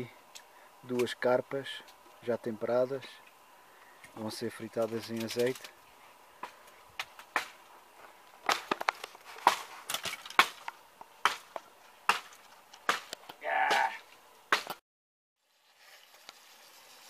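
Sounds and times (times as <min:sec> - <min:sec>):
dry sticks cracking: 0:04.8 - 0:05.8, 0:06.4 - 0:14.8.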